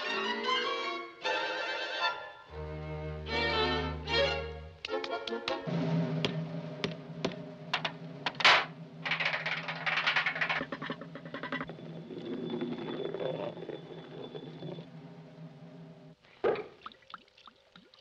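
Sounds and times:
dense rattle: 7.8 - 11.6
small object clicking and clattering: 7.8 - 11.7.

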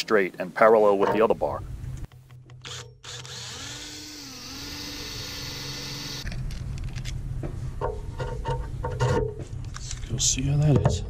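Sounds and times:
cordless drill whining: 2.6 - 6.3.

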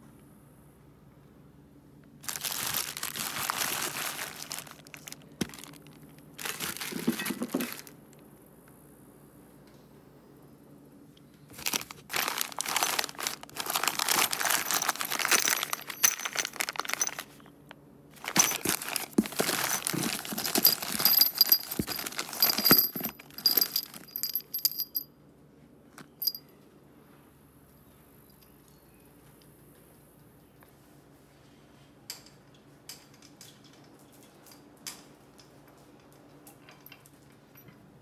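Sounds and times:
plastic bags crinkling and rustling: 2.2 - 8.0, 11.5 - 17.5, 18.2 - 24.7
small knocks in cardboard box: 6.4 - 7.9.

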